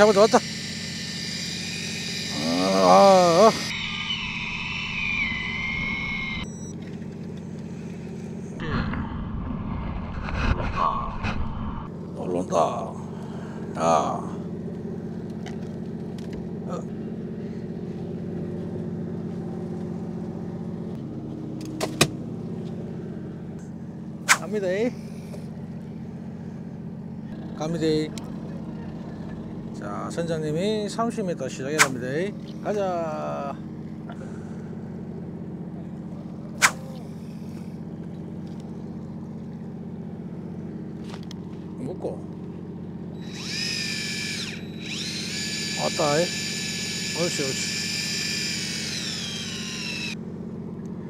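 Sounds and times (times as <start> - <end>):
boat engine humming: 0.0 - 8.6, 11.9 - 51.0
sharp click: 24.3 - 24.5, 31.8 - 32.0, 36.6 - 36.8.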